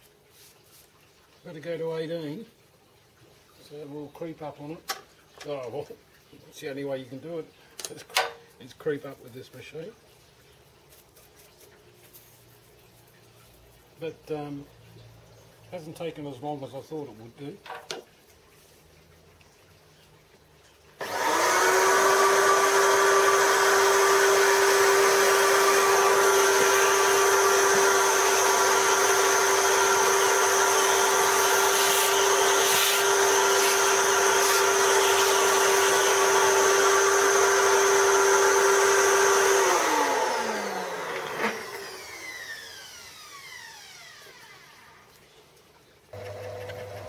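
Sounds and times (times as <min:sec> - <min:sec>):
vacuum cleaner whine: 0:21.0 - 0:45.1, 0:46.2 - 0:47.0.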